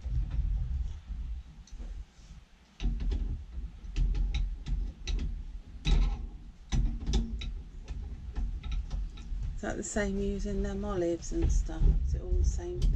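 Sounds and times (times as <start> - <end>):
low rumble: 0.0 - 2.1, 9.3 - 12.9
clicks and knocks on metal fittings: 2.7 - 9.6.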